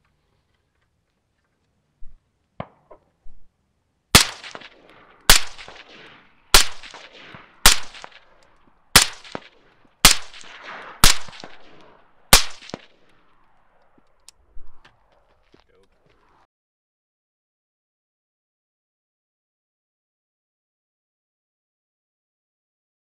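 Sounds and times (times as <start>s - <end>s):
suppressed rifle shots: 4.1s - 14.0s.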